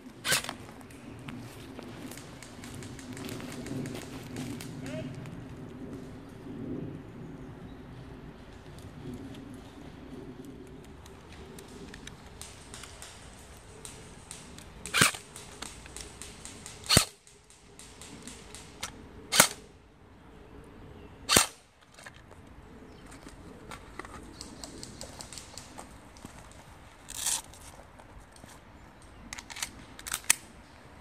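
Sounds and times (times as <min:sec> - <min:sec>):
airsoft gun shots: 0:13.8 - 0:18.7, 0:19.3 - 0:19.6.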